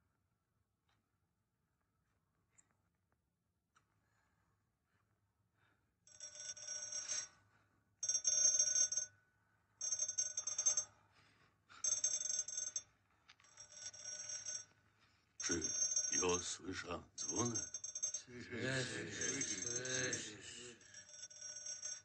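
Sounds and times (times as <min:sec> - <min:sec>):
electric signal bell ringing: 0:06.1 - 0:07.3, 0:08.0 - 0:09.1, 0:09.8 - 0:10.9, 0:11.8 - 0:12.8, 0:13.5 - 0:14.7, 0:15.4 - 0:16.6, 0:17.2 - 0:22.0.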